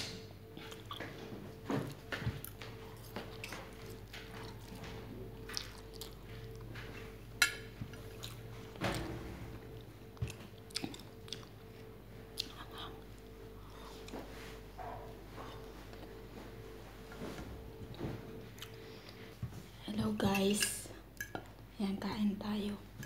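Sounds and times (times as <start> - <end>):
faint steady hum: 0.0 - 23.0
chewing food: 0.4 - 8.9, 9.6 - 14.3, 18.5 - 19.3.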